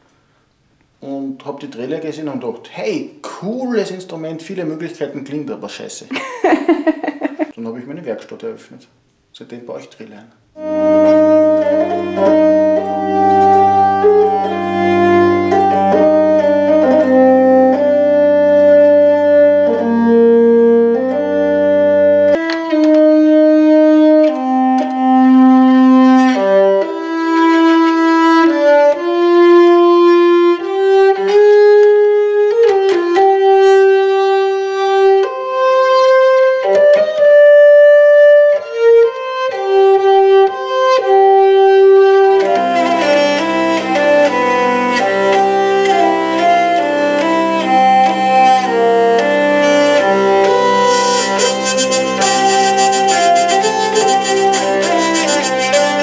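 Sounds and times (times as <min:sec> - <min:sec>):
hurdy-gurdy drones: 0:10.6 - 0:37.2, 0:38.5 - 0:56.0
hurdy-gurdy melody: 0:10.6 - 0:56.0.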